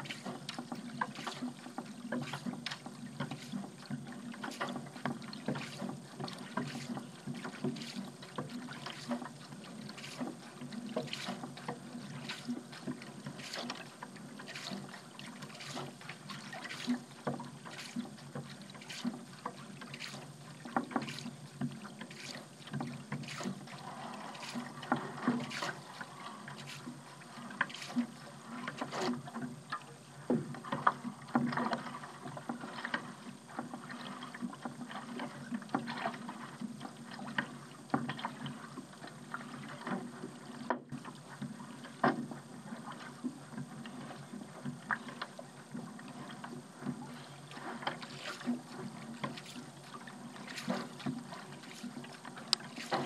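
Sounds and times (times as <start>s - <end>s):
paddle splashing in water: 0.0s - 53.0s
water dripping and lapping: 0.0s - 53.0s.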